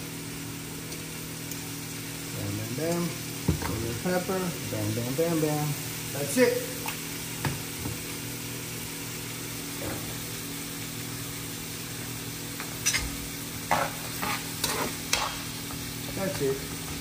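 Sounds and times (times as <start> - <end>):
vegetables sizzling in a frying pan: 0.0 - 17.0
spatula scraping a pan: 12.8 - 15.6.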